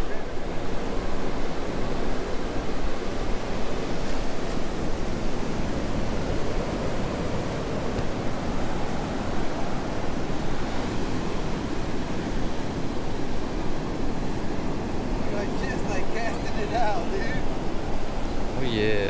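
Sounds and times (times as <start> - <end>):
wind: 0.0 - 19.0.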